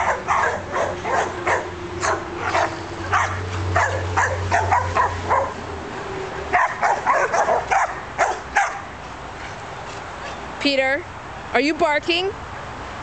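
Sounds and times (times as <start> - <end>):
dogs barking: 0.0 - 5.7, 6.5 - 9.6.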